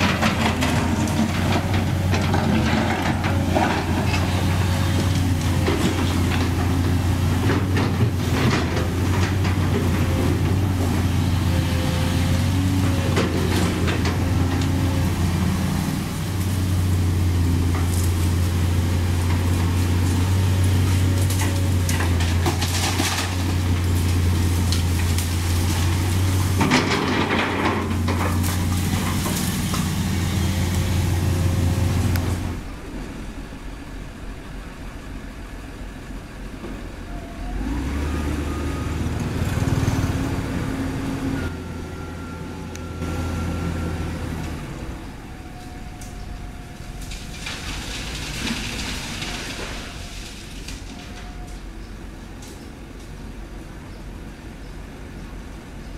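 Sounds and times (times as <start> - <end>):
bucket scraping asphalt and concrete: 0.0 - 32.8, 47.2 - 51.4
rush of debris: 0.0 - 34.3, 43.0 - 52.5
excavator diesel engine: 0.0 - 55.9.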